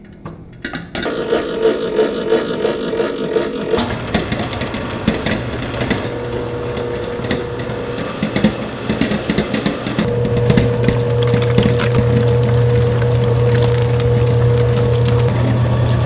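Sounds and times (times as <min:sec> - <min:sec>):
stand mixer motor hum: 0:01.1 - 0:16.0
mixer beater clicks and knocks: 0:03.3 - 0:16.0.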